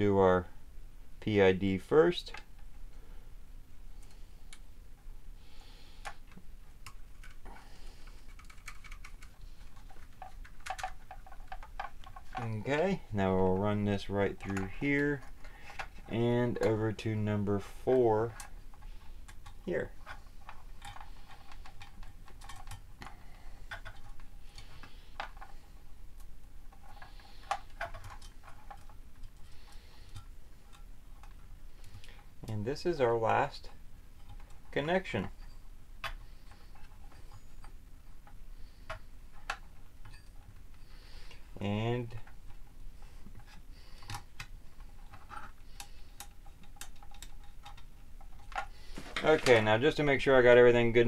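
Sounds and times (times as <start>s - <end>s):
small clicks and taps: 43.3s - 49.6s.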